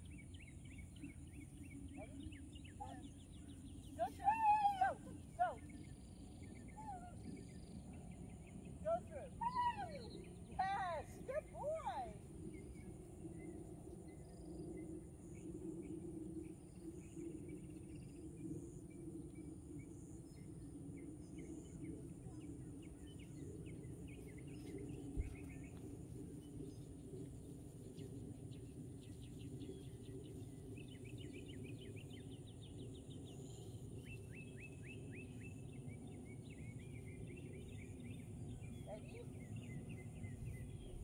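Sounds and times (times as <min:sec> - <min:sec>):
low steady hum: 0:00.0 - 0:41.0.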